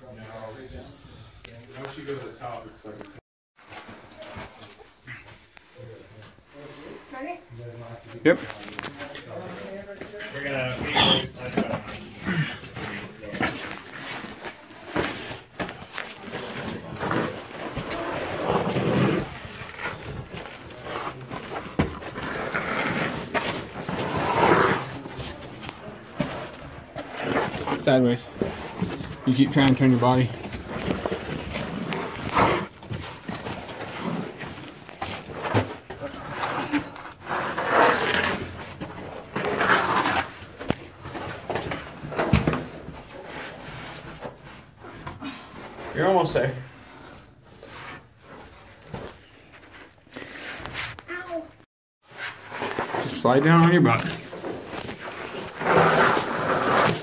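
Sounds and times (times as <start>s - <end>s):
clothing scraping against rock: 15.6s - 41.0s, 52.0s - 57.0s.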